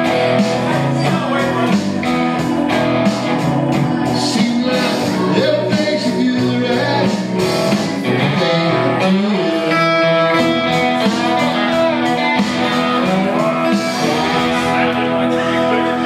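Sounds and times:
blues-rock backing band: 0.0s - 16.0s
resonator guitar: 0.0s - 16.0s.

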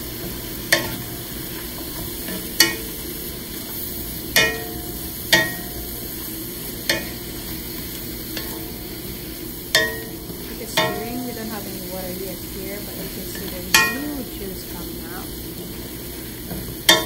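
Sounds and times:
mushrooms and onions sizzling: 0.0s - 17.0s
spatula knocking on metal pan: 4.4s - 5.8s, 9.7s - 11.2s, 13.4s - 14.1s, 16.5s - 17.0s.

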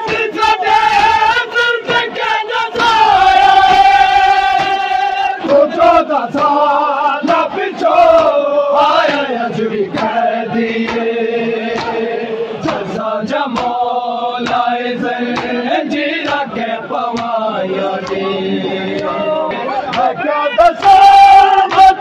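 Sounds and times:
hands slapping chests: 0.0s - 1.2s, 1.9s - 6.5s, 9.9s - 10.2s, 10.8s - 11.1s, 11.7s - 17.4s, 18.0s - 18.3s, 19.8s - 20.2s
crowd of men chanting: 0.0s - 22.0s.

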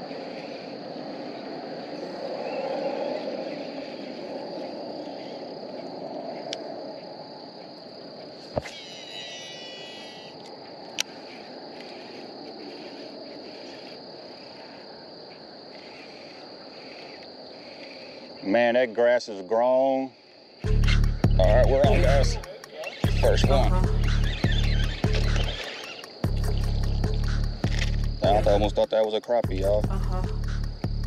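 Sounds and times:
high-pitched insect chorus: 0.0s - 31.0s
sharp clicks: 24.0s - 28.1s.

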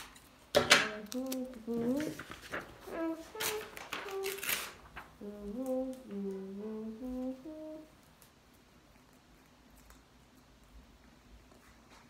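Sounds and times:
rustling handling noise: 0.0s - 6.4s
child humming: 0.9s - 2.2s, 2.8s - 7.9s.

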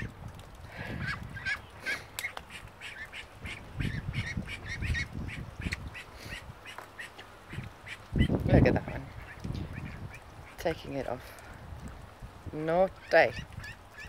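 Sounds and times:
ducks quacking: 0.8s - 10.8s.

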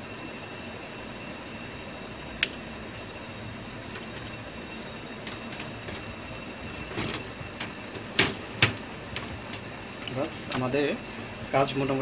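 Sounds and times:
computer case cover clicks and knocks: 7.0s - 8.8s.

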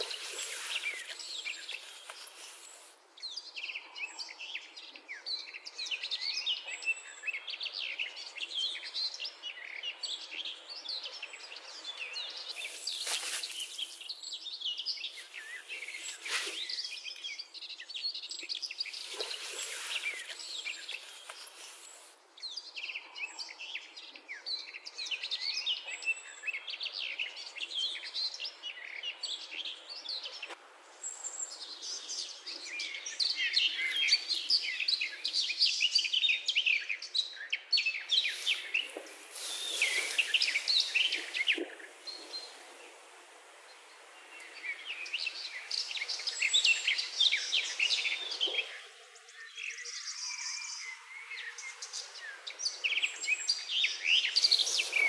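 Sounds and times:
hiss-like noise: 0.0s - 3.1s, 12.4s - 14.3s, 15.0s - 17.3s, 18.7s - 22.2s, 38.1s - 49.6s, 50.2s - 55.0s
songbirds chirping: 0.0s - 55.0s.

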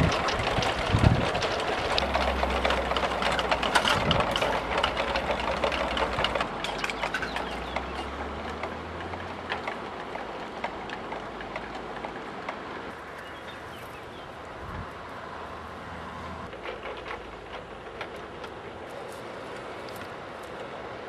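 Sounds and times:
wind rumble on microphone: 0.0s - 7.8s, 14.4s - 15.1s
plastic windmills clattering: 0.0s - 13.2s, 16.5s - 21.0s.

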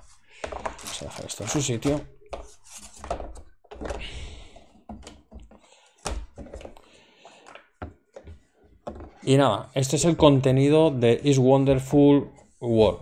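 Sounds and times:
cardboard pieces knocking and sliding: 0.0s - 9.2s.

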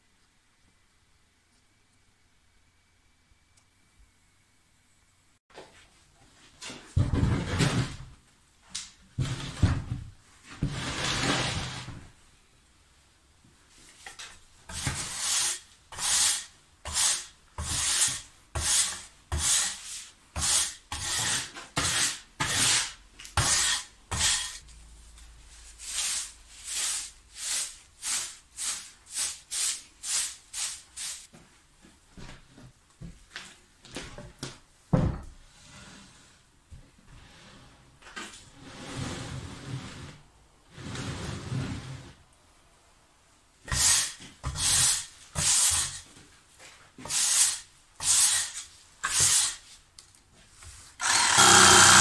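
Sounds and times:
hand tool rasping on wood: 51.0s - 52.0s.

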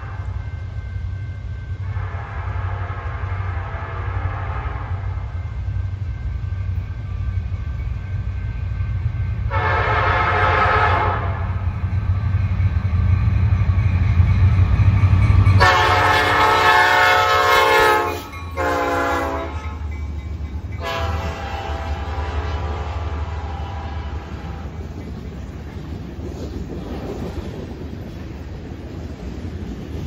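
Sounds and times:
multi-tone train air horn: 0.0s - 0.6s, 1.8s - 5.3s, 9.5s - 11.6s, 15.6s - 19.8s, 20.8s - 24.8s
diesel locomotive engine rumble: 0.0s - 30.0s.

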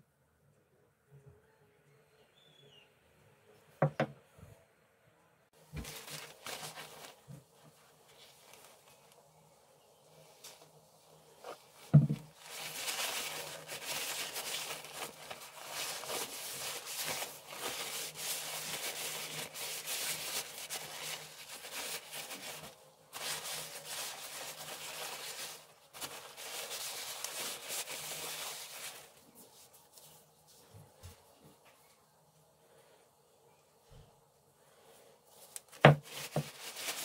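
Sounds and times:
paper towel rubbing and crinkling: 5.6s - 9.3s, 10.0s - 31.8s, 35.3s - 37.0s
thump: 11.9s - 12.2s.

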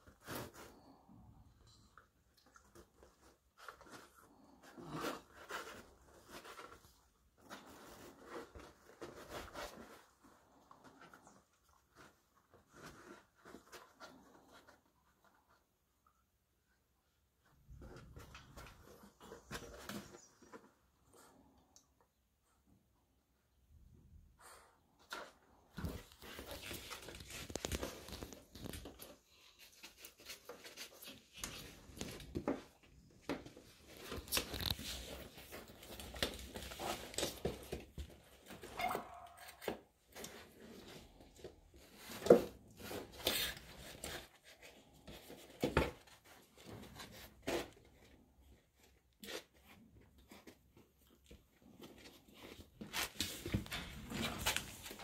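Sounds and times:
puppies shuffling on a mat: 1.9s - 16.6s, 24.3s - 55.0s.

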